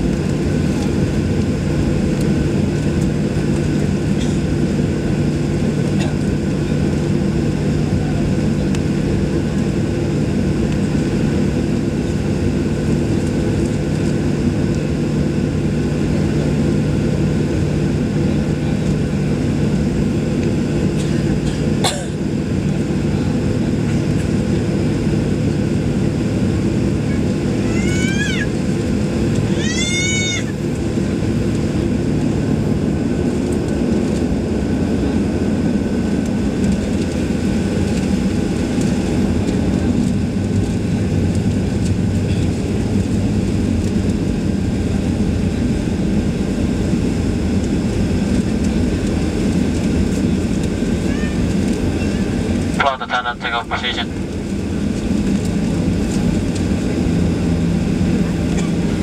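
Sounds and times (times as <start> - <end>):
jet engine noise in cabin: 0.0 - 59.0.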